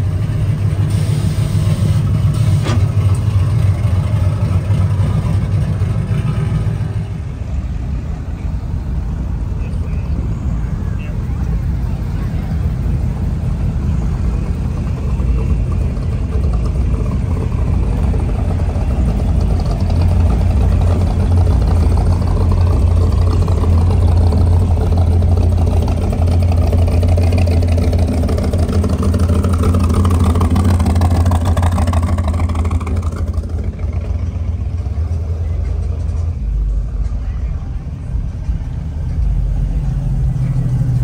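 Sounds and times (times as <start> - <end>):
truck engines running: 0.0 - 41.0.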